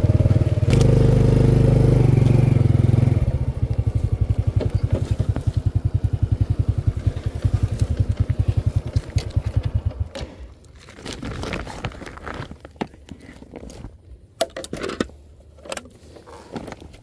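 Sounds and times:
motorcycle engine idling: 0.0s - 10.5s
clicks and handling rattles: 7.5s - 17.0s.

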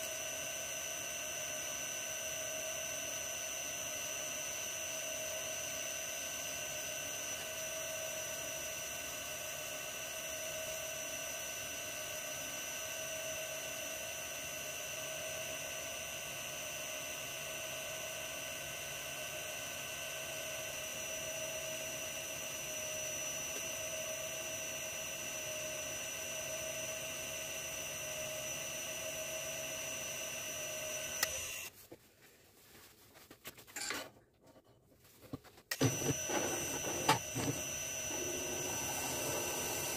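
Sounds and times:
lathe motor whining: 0.0s - 31.7s, 35.7s - 39.9s
faint handling sounds: 31.3s - 36.6s.

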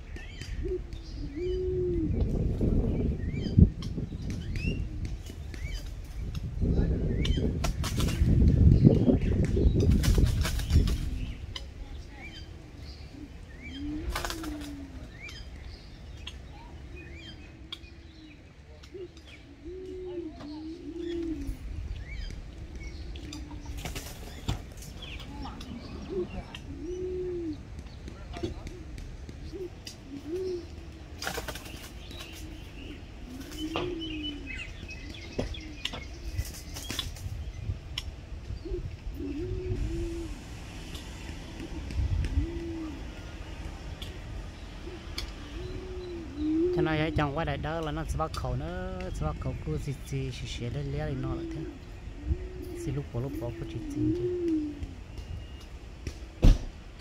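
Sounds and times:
doves cooing: 0.0s - 57.0s
small birds chirping: 0.0s - 57.0s
wings fluttering: 7.4s - 12.6s, 13.8s - 15.1s, 19.8s - 35.5s, 36.1s - 37.4s.

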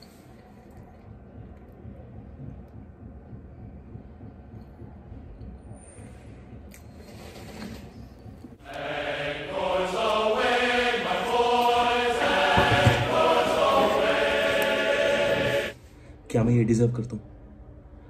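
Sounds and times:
choral chant with held notes: 8.6s - 15.8s.

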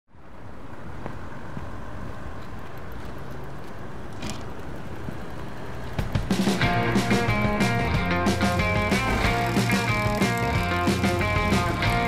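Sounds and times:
traffic rumble: 0.1s - 12.0s
plucked guitar music: 6.6s - 12.0s.

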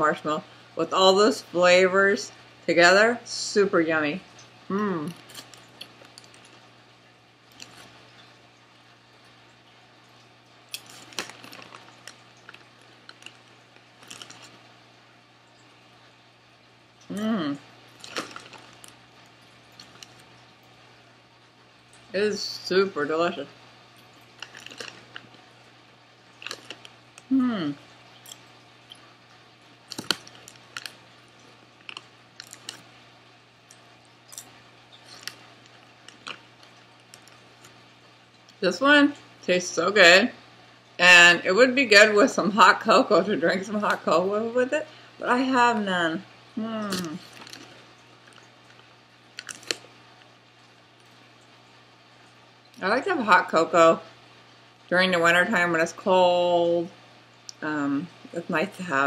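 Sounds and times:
popcorn crunching: 4.7s - 6.7s, 7.4s - 8.2s, 10.7s - 14.7s, 17.9s - 20.4s, 24.0s - 25.5s, 26.2s - 27.4s, 28.2s - 33.0s, 33.6s - 38.6s, 46.6s - 50.4s
foil snack bag crinkling: 5.1s - 6.7s, 7.5s - 8.2s, 10.7s - 14.7s, 17.9s - 20.4s, 24.2s - 25.5s, 26.2s - 27.3s, 29.8s - 33.0s, 33.7s - 37.8s, 46.8s - 50.3s.

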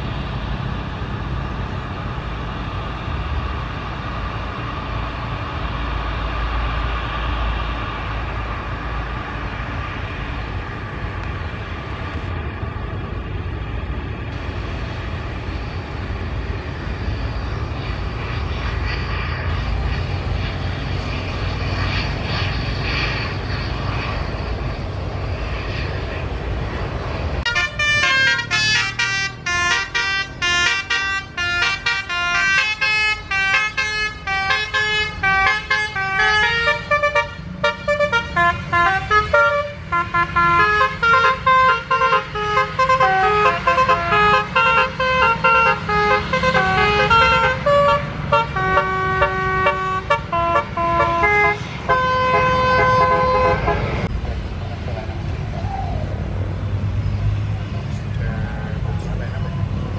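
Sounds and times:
jet engines rumbling: 0.0s - 59.9s
musical vehicle horn tune: 27.5s - 54.0s.

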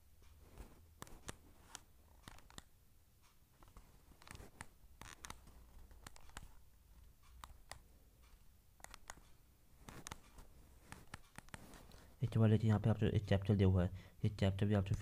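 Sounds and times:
touchscreen tapping clicks: 7.2s - 12.4s.

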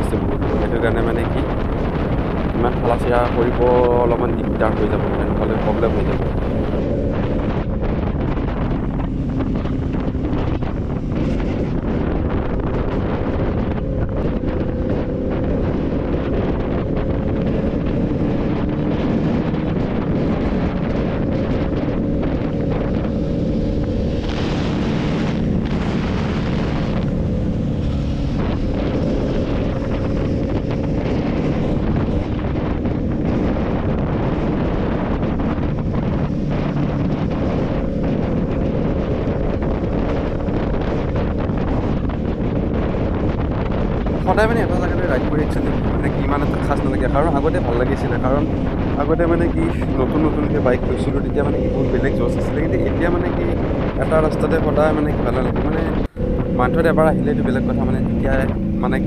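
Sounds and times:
motorcycle engine running: 0.0s - 59.0s
wind buffeting microphone: 0.0s - 59.0s.

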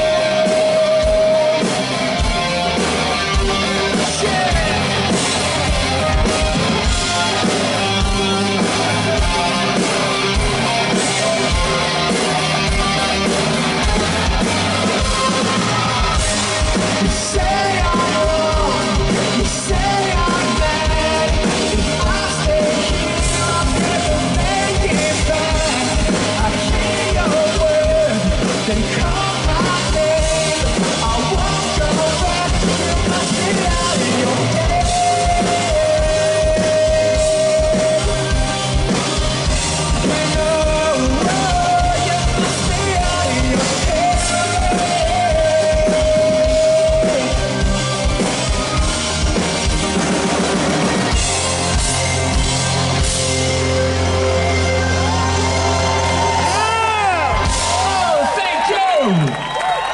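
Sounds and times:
man singing long notes: 0.0s - 1.9s, 15.0s - 38.8s, 39.6s - 47.7s
drum beat: 0.0s - 53.4s.

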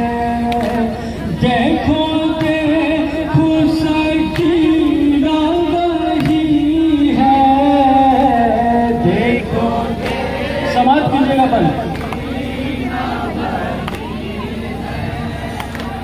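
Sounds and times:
man singing lament over loudspeakers: 0.0s - 12.0s.

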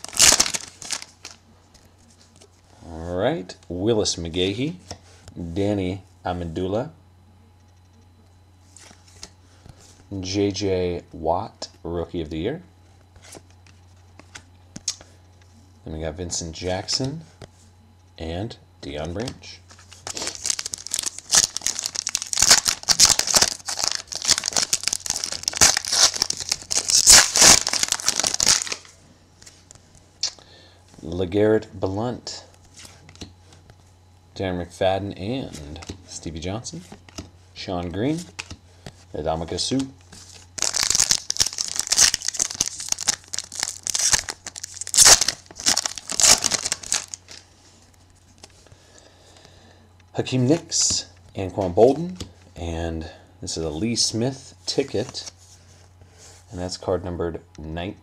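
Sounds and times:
foil wrapper crinkling and ripping: 0.0s - 1.4s, 19.9s - 28.9s, 40.3s - 47.4s
cards rustling: 0.0s - 2.5s, 19.1s - 29.8s, 36.8s - 39.0s, 39.6s - 48.7s.

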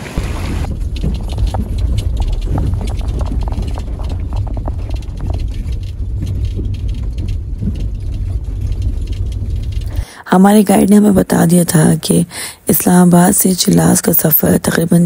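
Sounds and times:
car rumbling over rough road: 0.0s - 11.4s
car rattling clicks and knocks: 0.6s - 11.1s.

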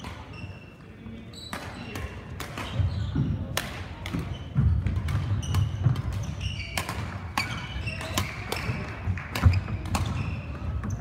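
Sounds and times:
shoe squeaks on court floor: 0.0s - 3.5s, 4.2s - 11.0s
racket striking shuttlecock: 3.5s - 10.6s.

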